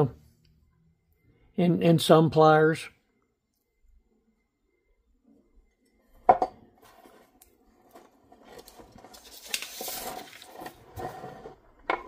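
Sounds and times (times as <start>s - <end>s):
paper rustling: 6.8s - 11.2s.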